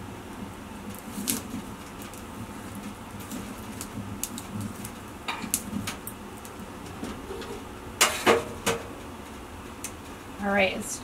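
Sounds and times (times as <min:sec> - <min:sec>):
fire crackles: 0:00.0 - 0:11.0
wood fire murmur: 0:00.0 - 0:11.0.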